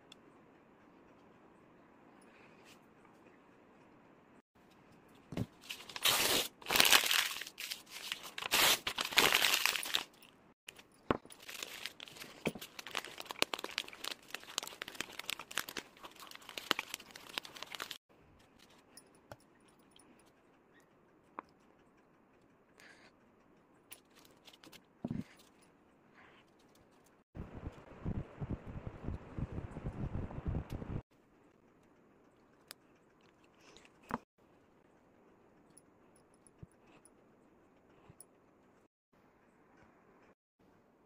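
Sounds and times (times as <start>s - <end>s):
paper crinkling and crackling: 5.5s - 10.2s, 11.2s - 18.8s.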